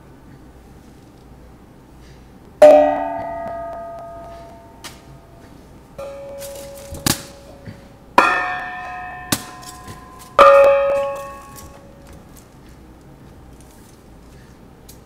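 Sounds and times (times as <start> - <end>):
small hand cymbal struck: 2.6 - 5.4
faint ringing tone: 2.6 - 12.1.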